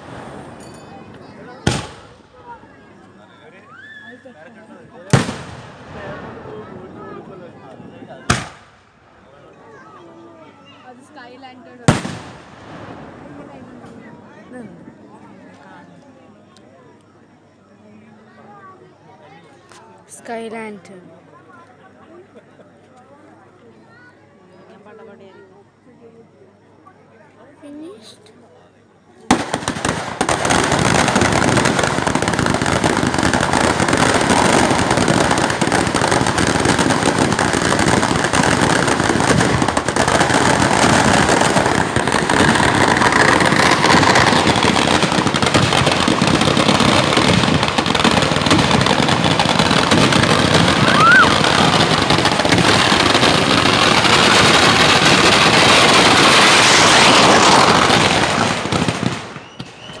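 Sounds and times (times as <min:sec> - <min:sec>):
firecrackers bursting: 0:00.0 - 0:03.2, 0:04.9 - 0:09.4, 0:11.8 - 0:14.6, 0:29.3 - 1:00.0.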